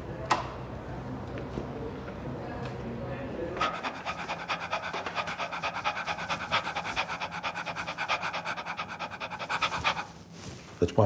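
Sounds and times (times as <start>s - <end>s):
person panting rapidly: 3.6s - 10.2s.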